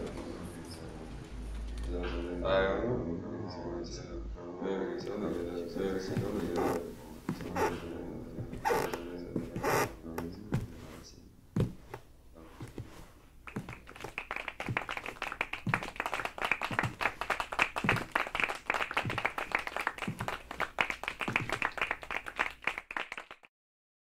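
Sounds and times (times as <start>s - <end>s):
audience applauding: 13.5s - 23.5s.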